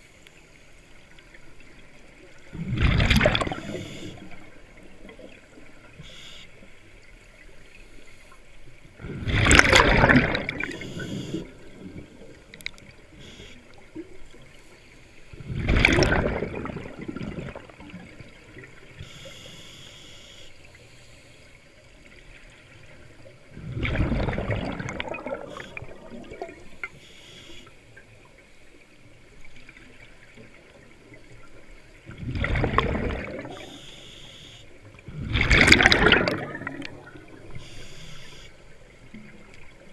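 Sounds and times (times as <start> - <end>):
underwater breath bubbles: 2.5 - 4.5, 9.0 - 12.4, 15.3 - 18.1, 23.5 - 27.7, 32.1 - 38.5
faint hiss: 5.9 - 7.0, 13.0 - 15.4, 19.0 - 21.9, 26.6 - 28.9, 33.5 - 34.8, 37.4 - 38.8.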